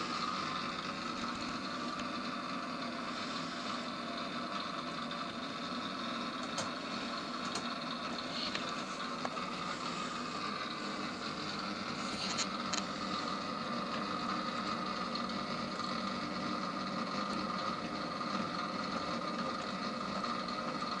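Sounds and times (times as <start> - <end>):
mechanism whirring hum: 0.0 - 21.0.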